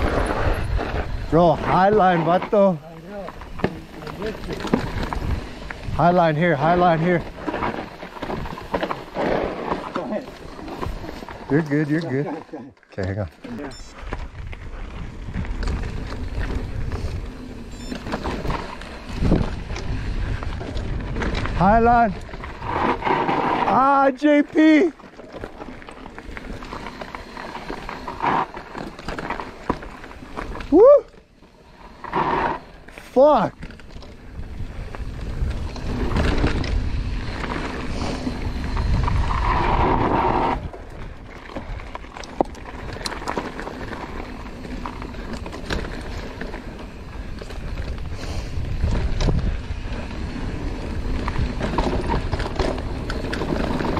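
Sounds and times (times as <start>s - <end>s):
bike jolt: 0.0s - 13.2s, 14.0s - 53.9s
bike rattling and clicking: 0.0s - 53.9s
wind rushing on microphone: 14.1s - 23.8s, 34.2s - 42.0s, 47.0s - 53.9s.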